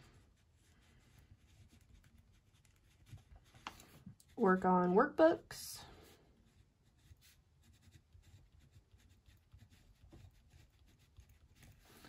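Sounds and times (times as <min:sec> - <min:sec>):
pen scratching on paper: 0:06.5 - 0:12.0.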